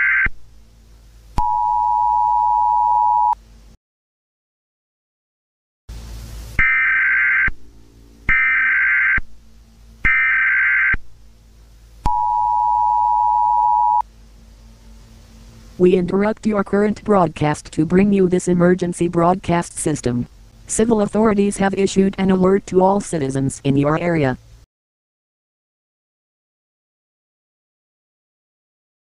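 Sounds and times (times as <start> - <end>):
two-tone attention signal: 1.4 - 3.4, 12.1 - 14.0.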